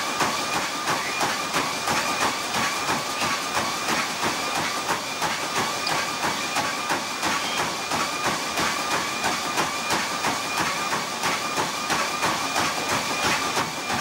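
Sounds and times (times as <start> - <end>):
footfalls on treadmill belt: 0.0 - 14.0
treadmill motor whine: 0.0 - 14.0.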